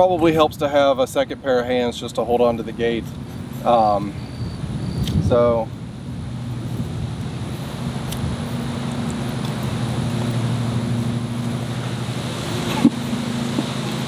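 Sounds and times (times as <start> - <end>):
motor humming: 5.8 - 14.0.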